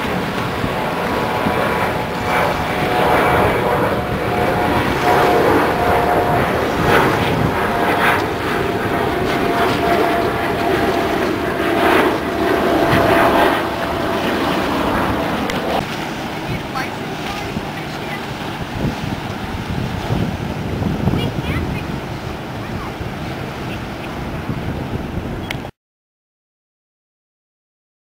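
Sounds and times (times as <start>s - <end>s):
thin constant whine: 0.0s - 18.6s
large engine droning: 0.0s - 24.2s.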